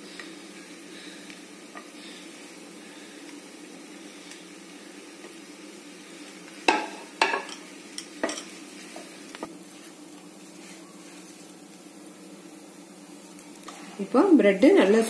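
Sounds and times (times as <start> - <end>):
faint sizzle of bread in oil: 0.0 - 15.0
spatula knocking on frying pan: 6.7 - 7.6.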